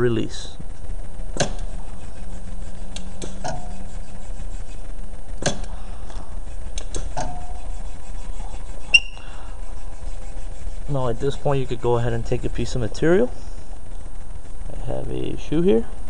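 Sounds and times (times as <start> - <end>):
steady low hum: 0.0 - 16.0
pneumatic hooks clicking: 5.4 - 5.7.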